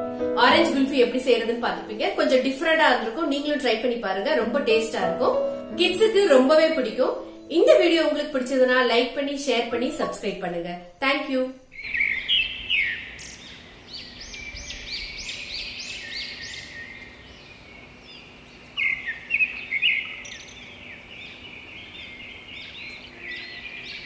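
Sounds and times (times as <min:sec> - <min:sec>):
small birds chirping: 0:11.6 - 0:24.0.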